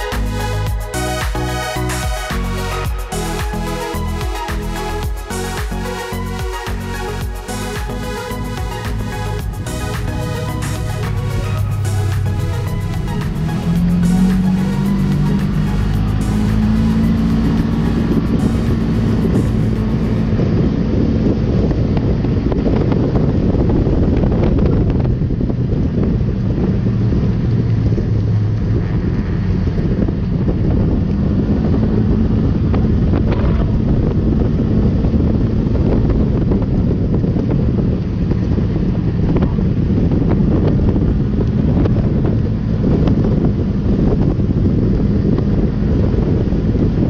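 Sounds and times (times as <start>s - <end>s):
vehicle engine running: 0.0s - 47.0s
wind buffeting the microphone: 16.5s - 47.0s.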